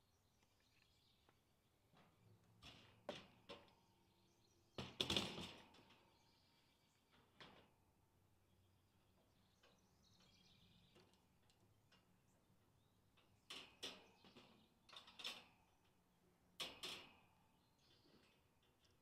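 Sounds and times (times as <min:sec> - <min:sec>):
wire crate clicking and rattling: 0:04.8 - 0:06.2, 0:13.2 - 0:16.0, 0:16.6 - 0:19.0.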